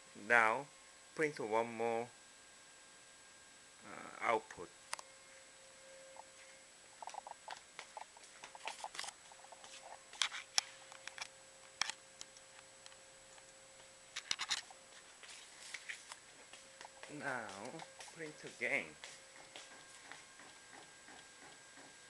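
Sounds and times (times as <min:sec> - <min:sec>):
faint steady hum: 0:00.0 - 0:22.0
camera handling clicks and scratching: 0:08.4 - 0:09.2, 0:10.2 - 0:12.0, 0:14.2 - 0:14.7.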